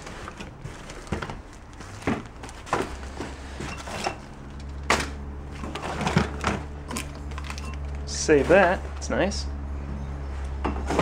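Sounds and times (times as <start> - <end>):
objects knocking and rustling in box: 0.0 - 7.8
low steady hum: 0.0 - 11.0.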